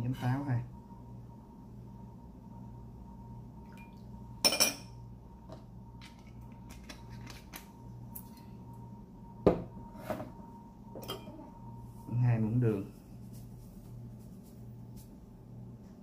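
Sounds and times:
metal spoon clinking glass bowl: 11.0 - 11.4.

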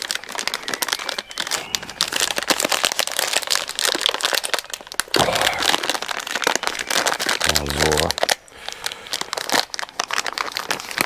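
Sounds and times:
plastic packet crinkling: 0.0 - 11.0.

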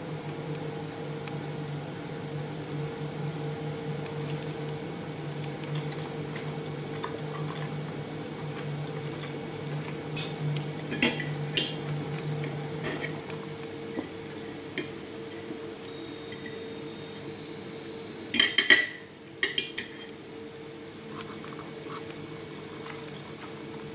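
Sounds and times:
steady low hum: 0.0 - 23.9
knife and fork clinking on a plate: 10.2 - 11.8, 18.4 - 20.1.

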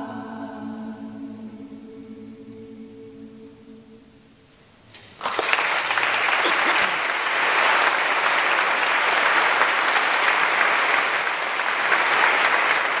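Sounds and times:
audience applauding: 5.0 - 13.0.

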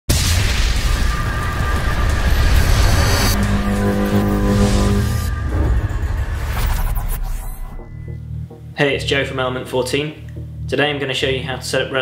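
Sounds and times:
deep boom with rushing hiss: 0.1 - 6.5
low rumble: 0.2 - 10.9
faint music: 7.6 - 12.0.

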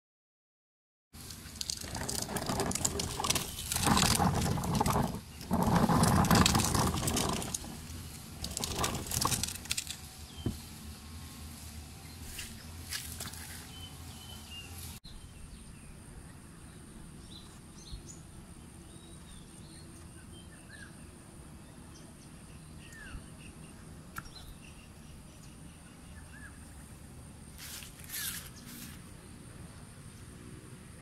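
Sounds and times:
birds chirping: 12.0 - 26.8.

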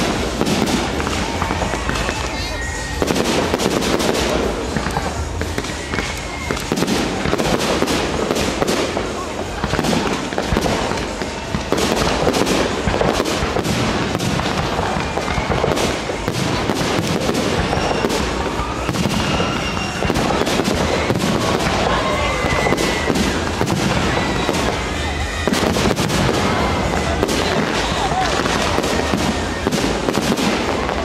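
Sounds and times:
fireworks bangs and crackle: 0.0 - 31.0.

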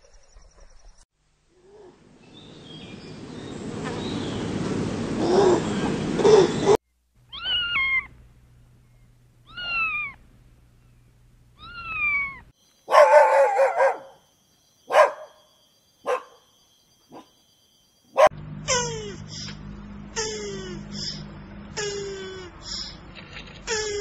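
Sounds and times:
kitten meowing: 7.3 - 8.1, 9.4 - 10.2, 11.6 - 12.5
dog barking: 12.9 - 14.2, 14.9 - 15.4, 16.0 - 16.4.

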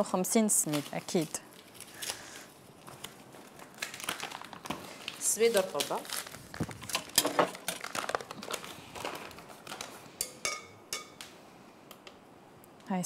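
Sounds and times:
bowls and utensils clinking: 10.2 - 11.2.

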